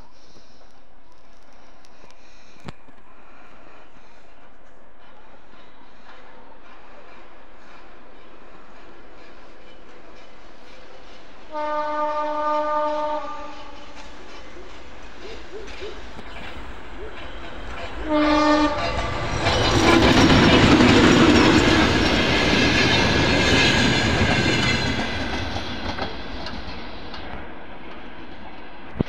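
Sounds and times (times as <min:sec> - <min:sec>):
locomotive horn blast: 0:11.5 - 0:13.8, 0:17.7 - 0:19.4
wheels clattering on rails: 0:13.4 - 0:29.0.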